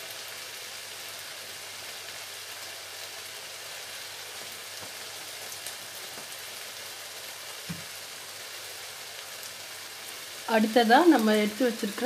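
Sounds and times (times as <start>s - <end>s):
masala sizzling in a wok: 0.0s - 12.0s
soft low thump: 7.7s - 7.9s.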